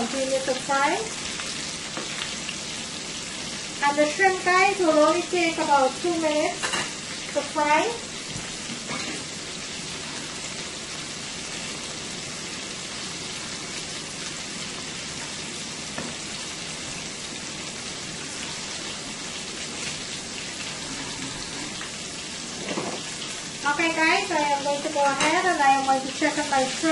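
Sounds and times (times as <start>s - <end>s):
food deep-frying in hot oil: 0.0s - 26.9s.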